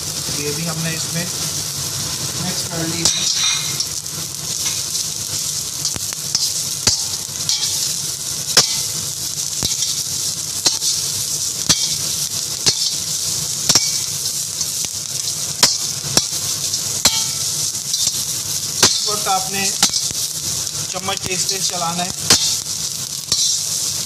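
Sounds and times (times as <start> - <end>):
vegetables sizzling in a wok: 0.0 - 24.0
metal utensils clacking on wok: 3.0 - 4.0, 5.8 - 7.9, 10.6 - 11.0, 11.7 - 12.0, 12.6 - 13.0, 13.7 - 14.1, 17.0 - 18.2, 18.8 - 19.2, 23.3 - 23.6.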